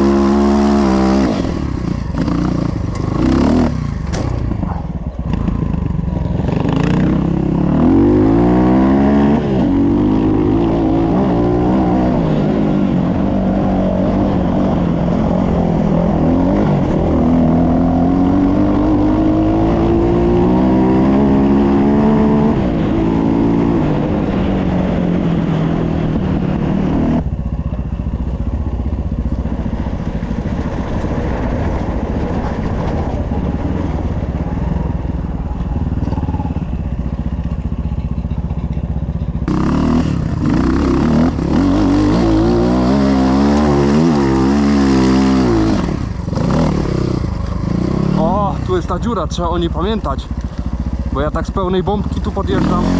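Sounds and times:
dirt bike engine revving: 0.0s - 27.3s, 39.4s - 52.9s.

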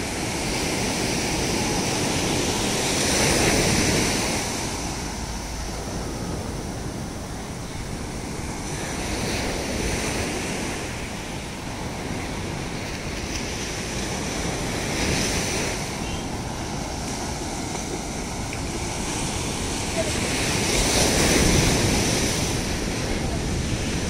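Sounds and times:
ocean surf breaking: 0.0s - 24.0s
wind rumbling on microphone: 0.0s - 24.0s.

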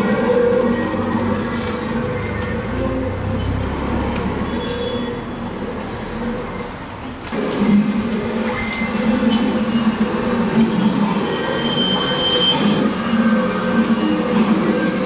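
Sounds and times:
hand cart rattling on pavement: 0.0s - 6.4s
cart wheels squeaking: 0.0s - 6.8s, 7.5s - 15.0s.

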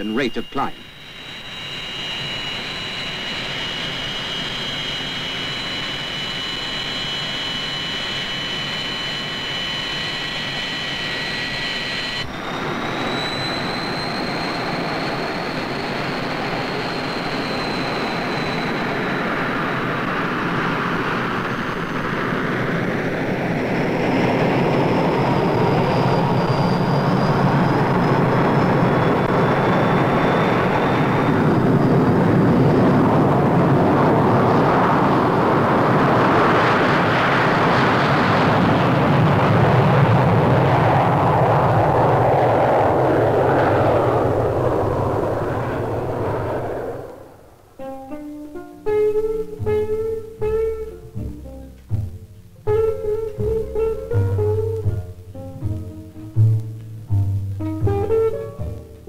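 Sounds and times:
jet engine whine and roar: 0.0s - 56.8s, 57.6s - 59.0s.

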